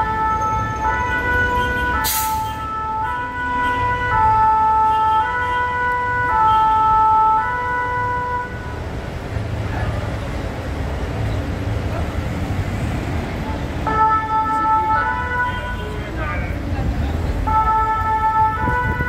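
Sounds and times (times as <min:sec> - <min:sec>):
two-tone emergency siren: 0:00.0 - 0:08.9, 0:13.8 - 0:16.2, 0:17.4 - 0:19.0
traffic and engine rumble: 0:00.0 - 0:19.0.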